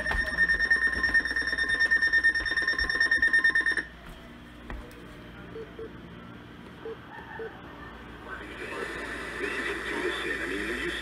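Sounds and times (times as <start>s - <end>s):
pulsing high-pitched alarm tone: 0.0s - 3.8s.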